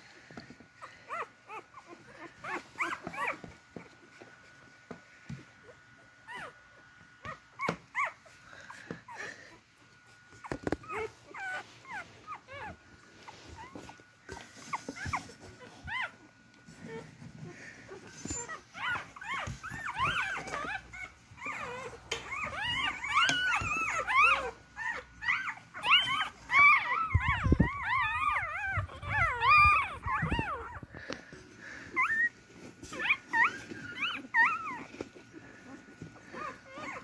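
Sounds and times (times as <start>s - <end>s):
puppies whimpering and squealing: 0.1s - 37.0s.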